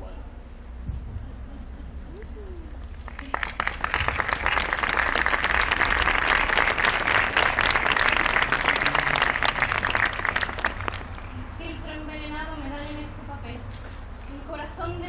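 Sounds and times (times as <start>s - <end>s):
audience applauding: 2.1s - 11.6s.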